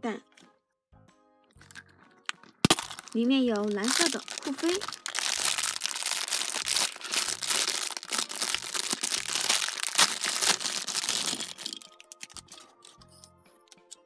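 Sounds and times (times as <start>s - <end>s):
quiet background music: 0.0s - 14.0s
plastic bag crinkling: 2.6s - 12.6s.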